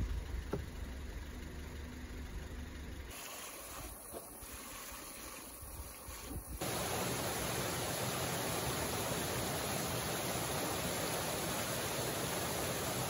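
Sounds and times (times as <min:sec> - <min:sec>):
stream rushing over boulders: 0:03.1 - 0:13.0.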